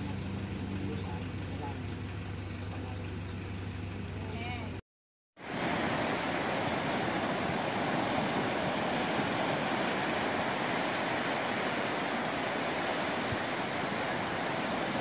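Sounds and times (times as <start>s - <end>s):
surf breaking on a beach: 5.4s - 15.0s.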